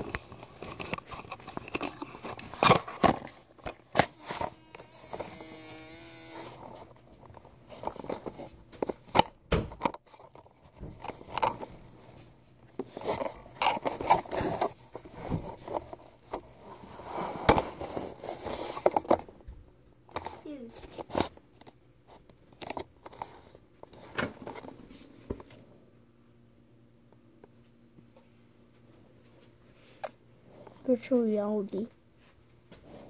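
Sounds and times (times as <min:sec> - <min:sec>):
short buzzing tone: 0:04.2 - 0:06.6.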